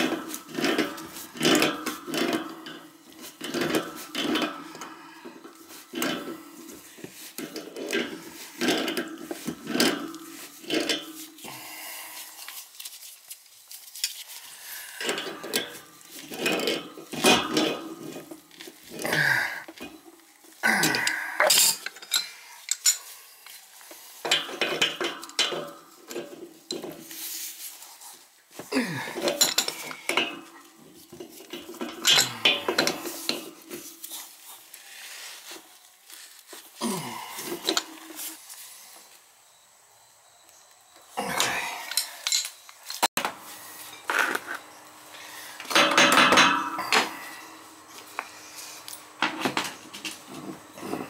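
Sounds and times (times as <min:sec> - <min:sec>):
metal pipe fittings clinking: 0:00.0 - 0:11.5, 0:14.0 - 0:20.2, 0:20.9 - 0:23.6, 0:24.2 - 0:27.1, 0:29.2 - 0:34.2, 0:37.5 - 0:38.4, 0:41.4 - 0:43.1, 0:45.6 - 0:47.2.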